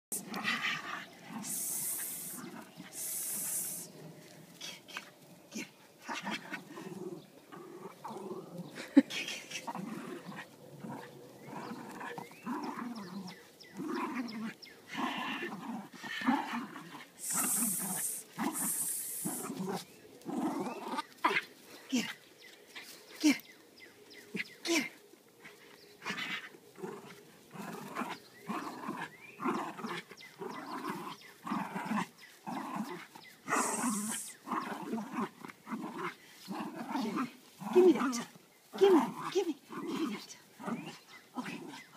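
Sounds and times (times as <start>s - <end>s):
dog growling: 0.1s - 21.5s, 26.0s - 41.9s.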